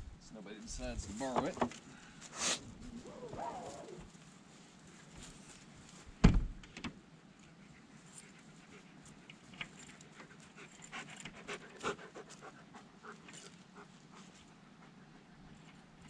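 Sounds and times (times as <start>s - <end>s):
light clicks and rustles: 3.2s - 12.5s, 13.1s - 16.0s
dog panting: 7.5s - 16.0s.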